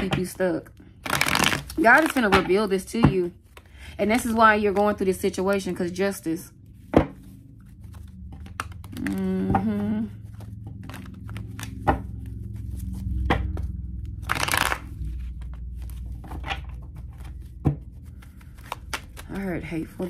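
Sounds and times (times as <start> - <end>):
cards snapping and tapping: 1.0 - 2.4, 10.8 - 12.1, 14.2 - 14.8, 17.7 - 19.4
person humming: 8.9 - 10.4
cards riffling swish: 14.2 - 15.1.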